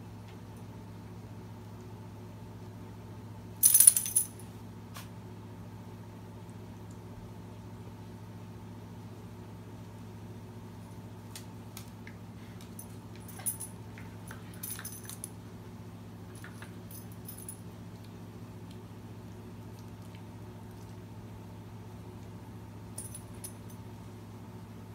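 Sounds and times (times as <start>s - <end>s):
steady low hum: 0.0s - 24.9s
dog collar tags jingling: 3.6s - 4.4s, 14.4s - 15.3s, 23.0s - 23.8s.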